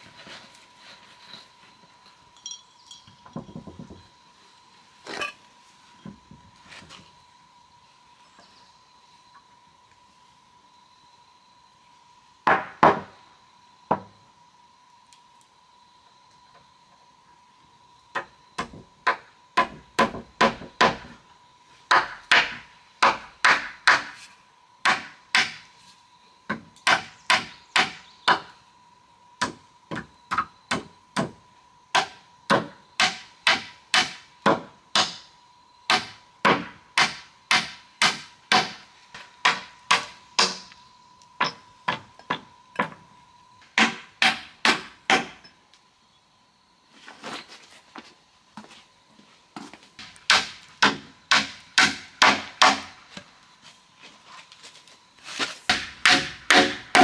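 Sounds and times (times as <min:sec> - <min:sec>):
hammer striking wood: 0:12.4 - 0:13.1, 0:18.2 - 0:21.2, 0:21.9 - 0:24.2, 0:24.8 - 0:25.6, 0:26.5 - 0:28.5, 0:29.4 - 0:35.2, 0:35.9 - 0:38.8, 0:39.4 - 0:40.7, 0:43.8 - 0:45.4, 0:50.3 - 0:53.0, 0:55.7 - 0:57.0.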